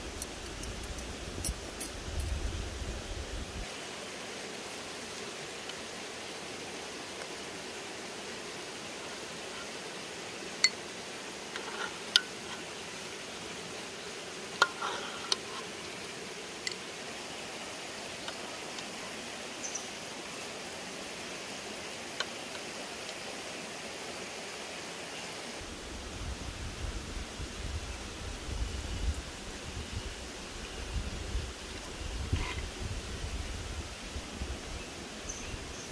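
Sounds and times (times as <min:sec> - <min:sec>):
stream rushing: 0:00.0 - 0:27.2.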